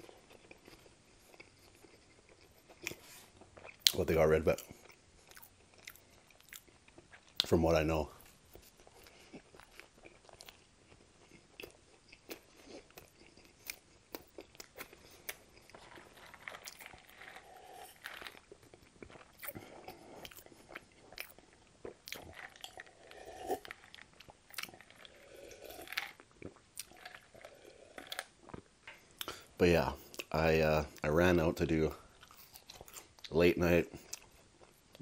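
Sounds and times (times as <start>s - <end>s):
chewing with lip smacks: 0.0s - 4.0s, 4.6s - 7.5s, 8.2s - 31.1s
sipping and swallowing: 14.4s - 29.5s.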